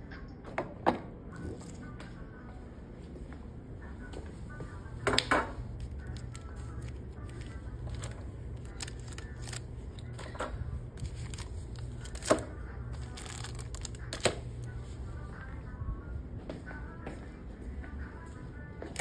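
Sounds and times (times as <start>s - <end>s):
postcards rustling: 5.7s - 14.8s.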